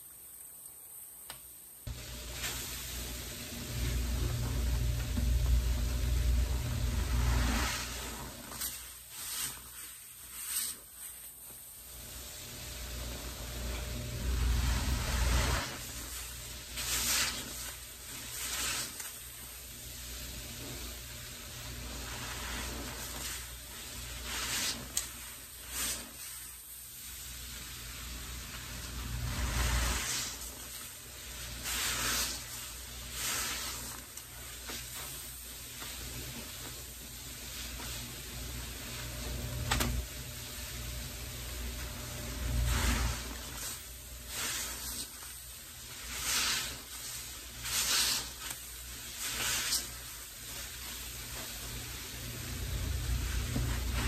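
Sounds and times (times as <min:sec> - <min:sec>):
suds sizzling and crackling: 0:00.1 - 0:54.0
sponge squishing as wrung out: 0:06.9 - 0:11.4, 0:14.2 - 0:19.4, 0:21.8 - 0:26.6, 0:28.5 - 0:35.2, 0:42.4 - 0:51.6.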